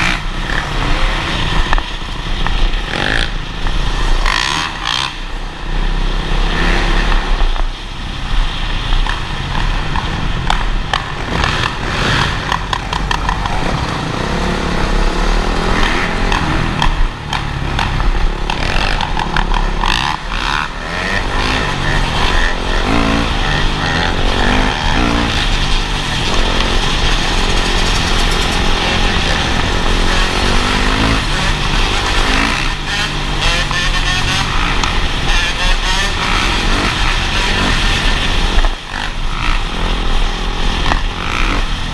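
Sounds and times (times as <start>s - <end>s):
dirt bike engines revving: 0.0s - 41.9s.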